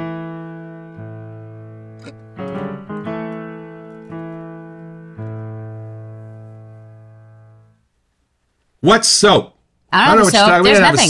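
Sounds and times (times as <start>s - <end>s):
piano-like keyboard chords: 0.0s - 7.8s.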